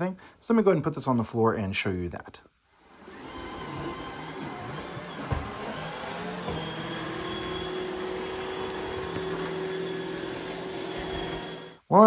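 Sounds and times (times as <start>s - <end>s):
robot vacuum motor and brush hum: 2.8s - 11.8s.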